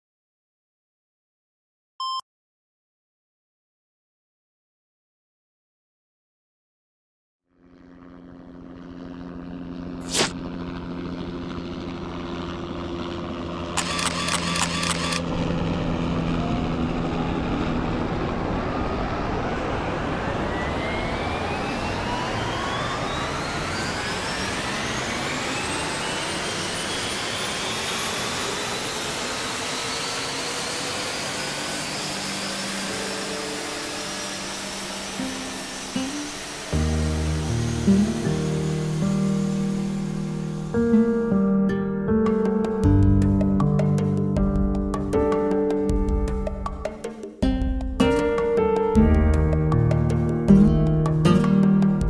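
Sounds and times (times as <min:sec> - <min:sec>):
quick beeps: 0:02.0 - 0:02.2
low hum: 0:07.5 - 0:41.4
drone propeller whine: 0:07.5 - 0:52.0.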